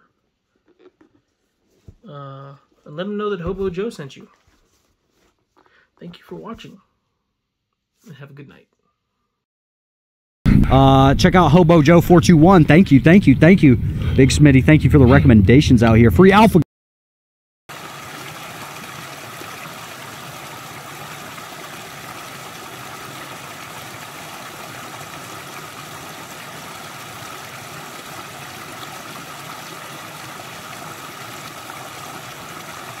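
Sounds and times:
stream splashing over stones: 0:17.7 - 0:33.0.

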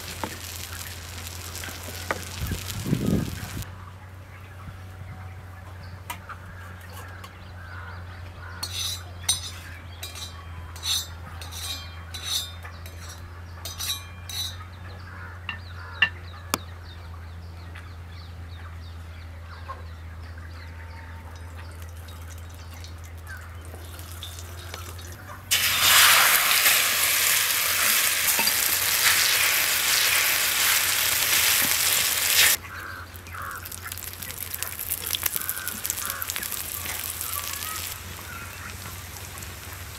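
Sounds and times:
egg sizzling in hot pan: 0:00.0 - 0:03.7, 0:23.2 - 0:39.9
metal spoon clinking on steel plate: 0:08.6 - 0:14.7.

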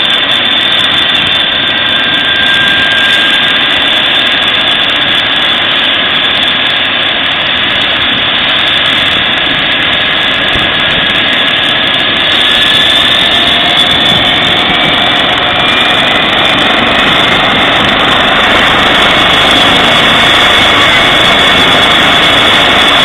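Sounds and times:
helicopter rotor and engine noise: 0:00.0 - 0:23.0
helicopter turbine whine: 0:00.0 - 0:23.0.

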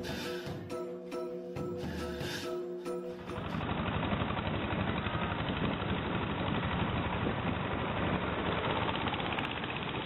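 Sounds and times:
boat engine chugging: 0:03.2 - 0:10.0.

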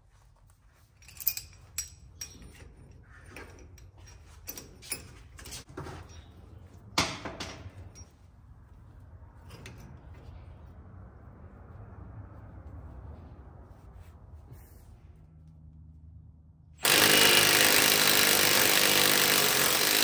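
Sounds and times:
metal tools clinking and clanking: 0:00.9 - 0:08.3.

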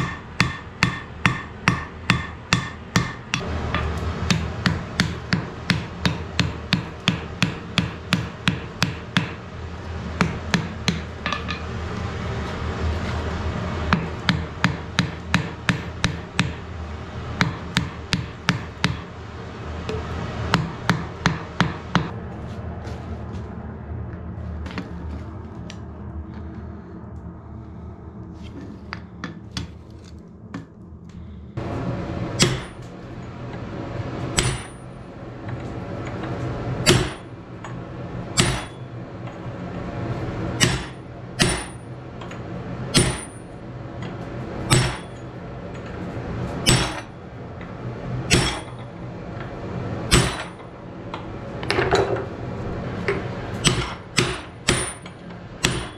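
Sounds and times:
hammer striking hot iron: 0:00.0 - 0:09.5, 0:10.1 - 0:11.8, 0:13.8 - 0:19.2, 0:19.8 - 0:22.2, 0:32.3 - 0:33.0, 0:34.3 - 0:39.4, 0:40.5 - 0:45.3, 0:46.6 - 0:47.2, 0:48.2 - 0:48.9, 0:50.1 - 0:50.7, 0:53.1 - 0:55.9
low hum: 0:00.0 - 0:55.9.

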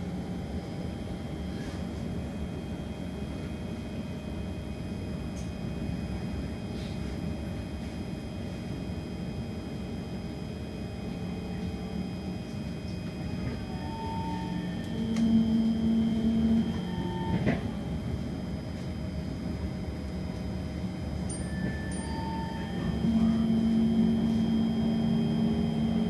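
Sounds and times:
high-pitched train whine: 0:00.0 - 0:26.0
steady hum tones: 0:09.1 - 0:26.0
train wheels rumbling on rail: 0:10.9 - 0:26.0.

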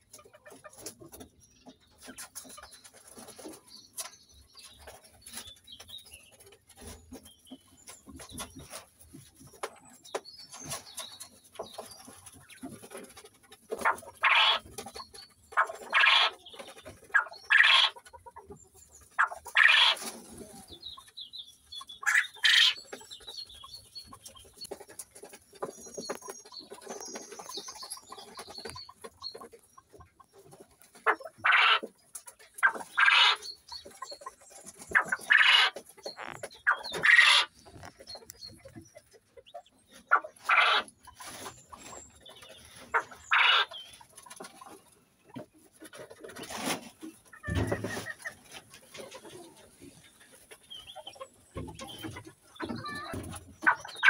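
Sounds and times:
quail crowing: 0:13.8 - 0:14.7, 0:15.6 - 0:16.4, 0:17.1 - 0:18.0, 0:19.2 - 0:20.6, 0:22.0 - 0:22.8, 0:31.4 - 0:31.9, 0:32.6 - 0:33.4, 0:35.0 - 0:35.8, 0:36.6 - 0:37.5, 0:40.1 - 0:40.9, 0:42.9 - 0:43.8, 0:52.6 - 0:54.0.

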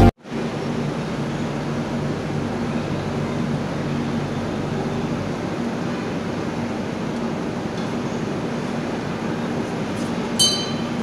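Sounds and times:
low hum: 0:00.0 - 0:07.4
locomotive whine: 0:00.0 - 0:11.0.

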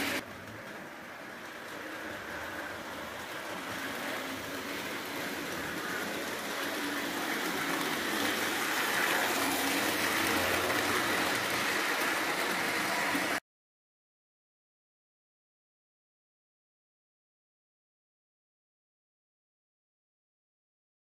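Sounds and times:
model train rolling on rails: 0:00.0 - 0:13.4.

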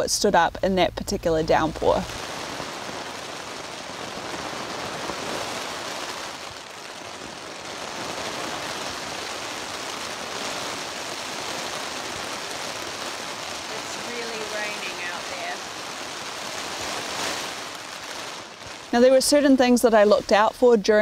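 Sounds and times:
heavy rain on tent: 0:01.4 - 0:21.0.

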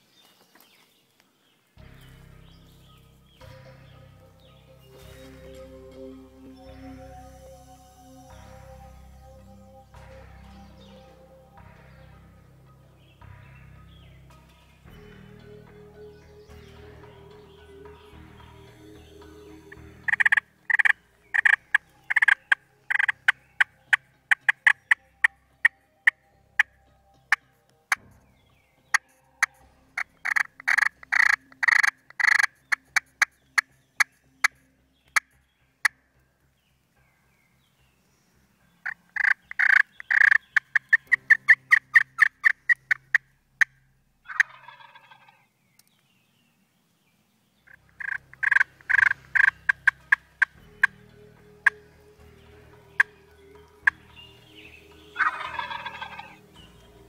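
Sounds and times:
turkey pot call yelps: 0:20.0 - 0:26.7, 0:28.9 - 0:33.7, 0:38.8 - 0:43.2, 0:44.3 - 0:45.4, 0:47.7 - 0:50.9, 0:55.1 - 0:56.5.

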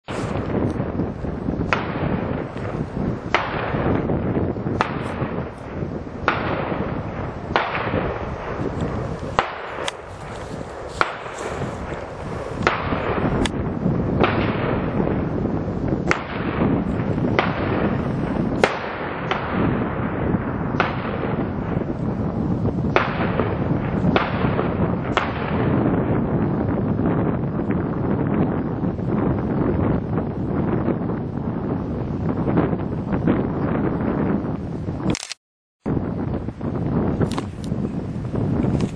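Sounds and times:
wind noise on microphone: 0:00.0 - 0:38.9
distant gunshots: 0:06.2 - 0:13.4, 0:14.2 - 0:15.0, 0:16.1 - 0:18.0, 0:20.8 - 0:21.8.

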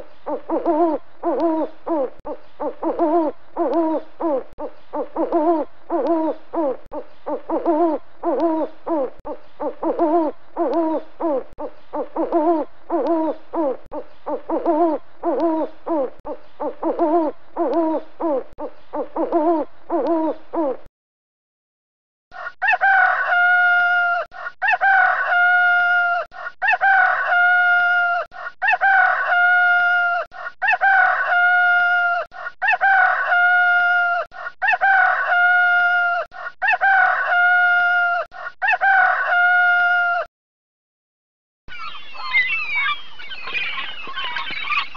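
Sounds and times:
owl hooting: 0:00.3 - 0:20.8
rooster crowing: 0:22.3 - 0:40.3.

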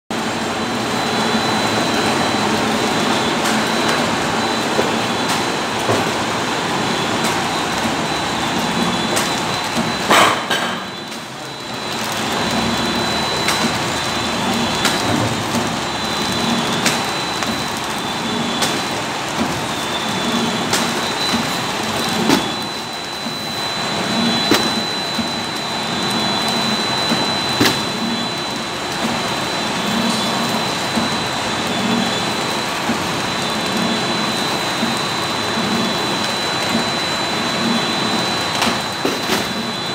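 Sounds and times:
thin high machine whine: 0:00.2 - 0:39.9
packing machine clattering: 0:01.6 - 0:28.2, 0:37.3 - 0:39.9.

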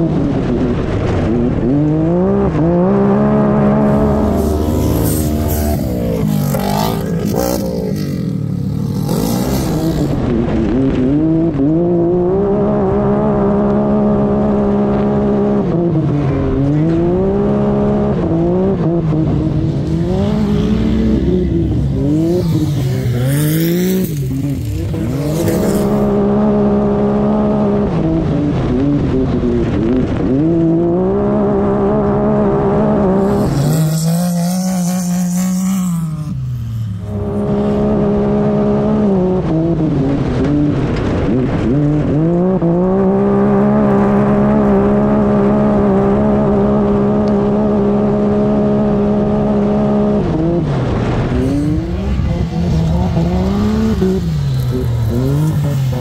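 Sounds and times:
utv engines revving: 0:00.0 - 0:56.0.

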